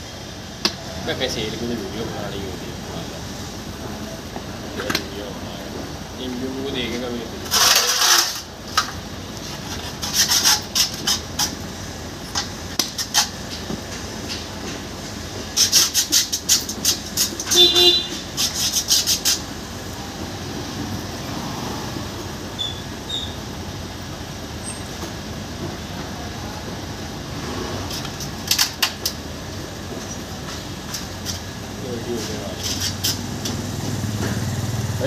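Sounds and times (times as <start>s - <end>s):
passing traffic rumble: 0.0s - 35.0s
metal parts clicking and scraping: 7.4s - 11.7s, 12.3s - 14.8s, 15.5s - 19.5s, 27.8s - 29.2s, 32.2s - 33.7s.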